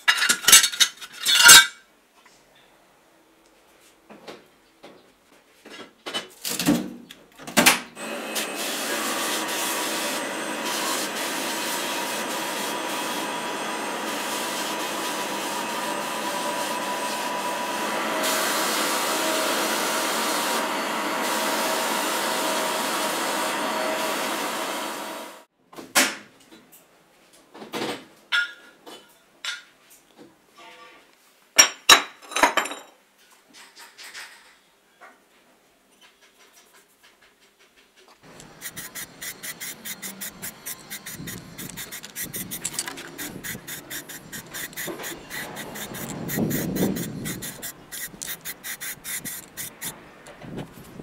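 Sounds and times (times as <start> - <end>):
sandblasting air gun hissing: 38.3 - 50.0.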